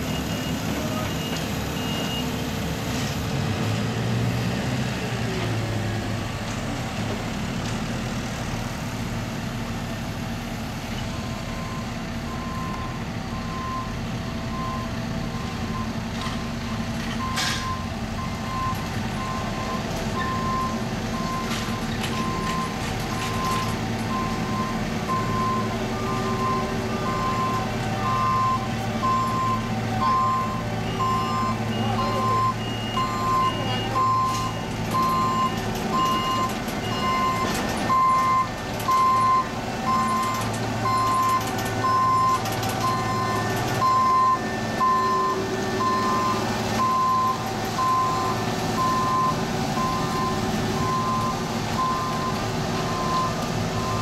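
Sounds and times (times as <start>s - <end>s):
diesel engines running: 0.0s - 54.0s
backup alarm beeping: 16.7s - 54.0s.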